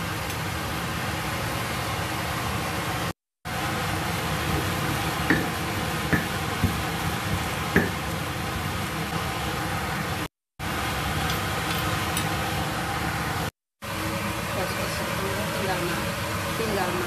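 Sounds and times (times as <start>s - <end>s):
pestle grinding in stone mortar: 5.3s - 8.0s.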